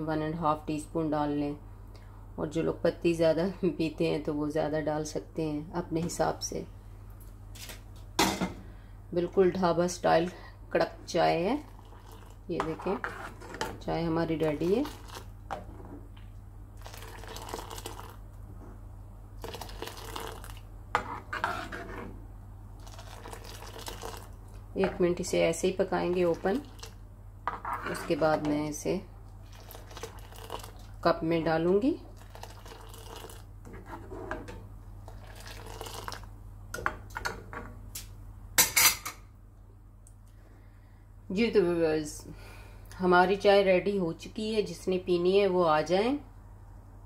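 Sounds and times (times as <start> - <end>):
low steady hum: 0.0 - 47.0
liquid pouring and splashing: 11.7 - 12.5, 16.8 - 18.2, 19.4 - 20.6, 22.8 - 24.5, 26.2 - 27.0, 29.4 - 31.0, 32.1 - 33.5, 35.0 - 36.3.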